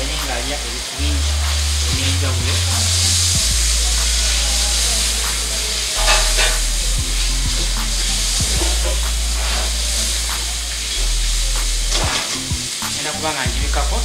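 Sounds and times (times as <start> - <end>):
low electrical hum: 0.0 - 14.0
chicken sizzling in hot oil: 0.1 - 14.0
spatula scraping pot: 6.0 - 6.7.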